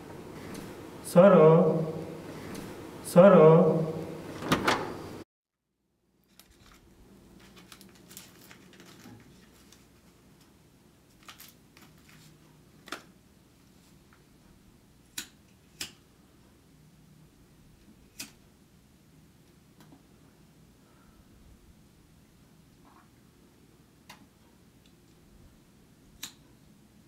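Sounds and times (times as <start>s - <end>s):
loud sound: 1.0s - 4.4s.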